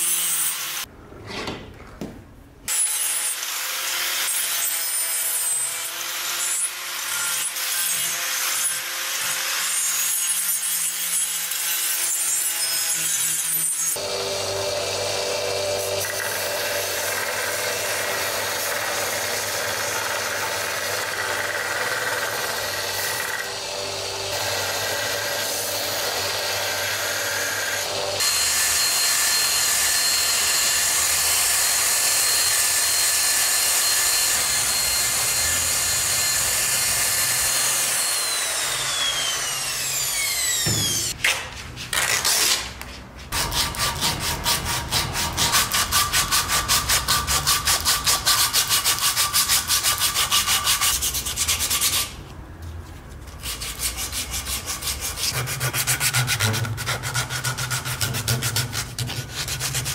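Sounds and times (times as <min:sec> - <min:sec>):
power sander hiss and whine: 0:38.0 - 0:41.1
hand sanding wood: 0:53.4 - 0:59.9.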